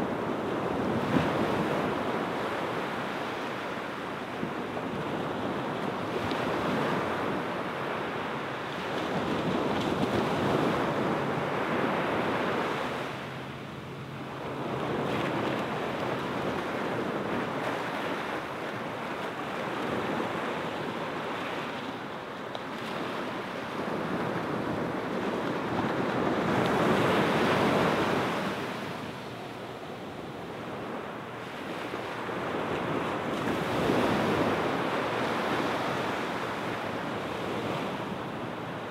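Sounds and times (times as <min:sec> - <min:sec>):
small waves washing onto sand: 0:00.0 - 0:38.9.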